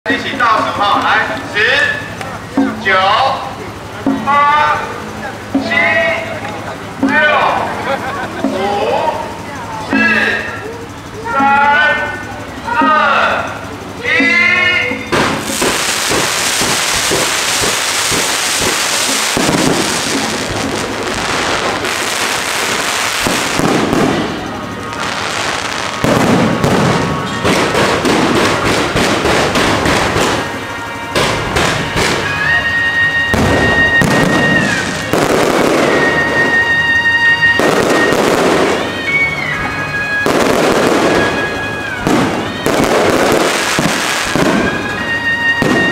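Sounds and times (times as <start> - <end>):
fireworks crackling: 0.1 - 45.9
long high firework whistles: 13.5 - 45.9
firework shells bursting: 15.0 - 45.9.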